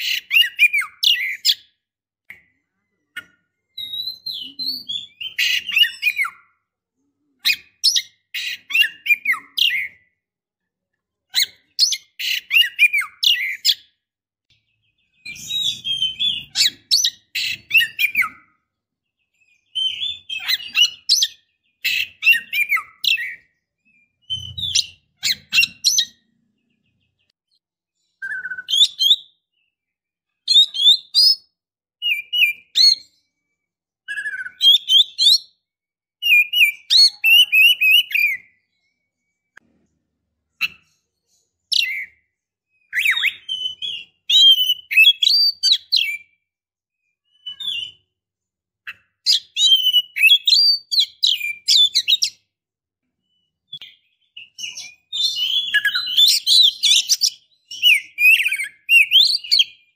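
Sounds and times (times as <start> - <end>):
bird chattering chirps and whistles: 11.3 - 13.9, 14.9 - 18.5, 19.6 - 23.5, 24.2 - 27.3, 28.2 - 29.4, 30.5 - 33.1, 34.1 - 35.5, 41.7 - 42.2, 42.8 - 46.3, 48.9 - 52.4, 53.7 - 59.8.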